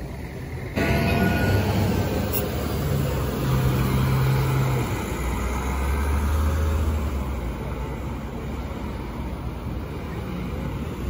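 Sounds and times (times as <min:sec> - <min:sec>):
bus passing: 0:00.0 - 0:11.0
car driving by: 0:00.7 - 0:07.2.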